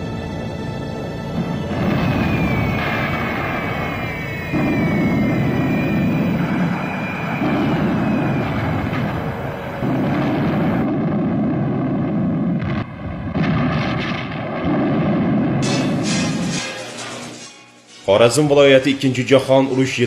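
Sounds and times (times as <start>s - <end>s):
aircraft engines and artillery rumble: 0.0s - 16.6s
falling whistle: 0.6s - 10.8s
sharp cracks: 1.4s - 18.1s.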